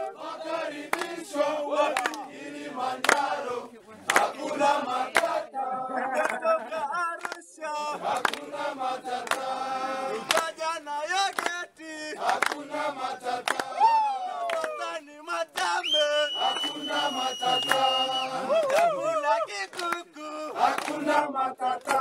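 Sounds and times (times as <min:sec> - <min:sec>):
men singing and chanting: 0:00.0 - 0:22.0
sharp claps: 0:00.9 - 0:01.2, 0:01.9 - 0:02.3, 0:03.0 - 0:03.4, 0:04.1 - 0:04.4, 0:05.1 - 0:05.4, 0:07.2 - 0:07.4, 0:08.1 - 0:09.6, 0:10.2 - 0:21.1, 0:21.8 - 0:22.0.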